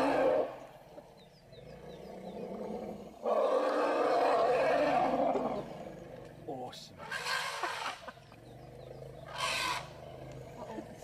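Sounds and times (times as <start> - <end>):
elephant trumpeting: 7.0 - 8.1, 9.3 - 10.0.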